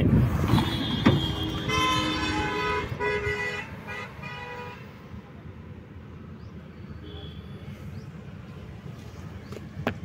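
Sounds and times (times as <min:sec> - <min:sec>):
vehicle horn honking: 0:00.5 - 0:04.9.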